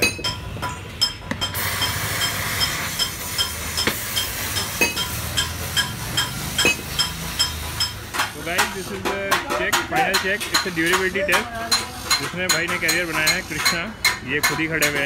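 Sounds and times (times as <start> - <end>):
welding arc hissing: 1.5 - 9.0, 10.0 - 13.6.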